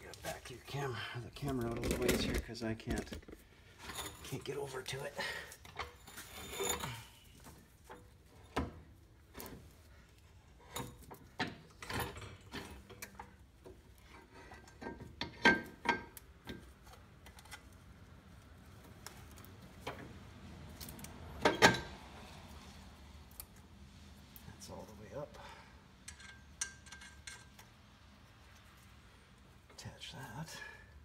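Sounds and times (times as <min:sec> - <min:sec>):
metal clinks and taps of tools: 0:26.0 - 0:27.7.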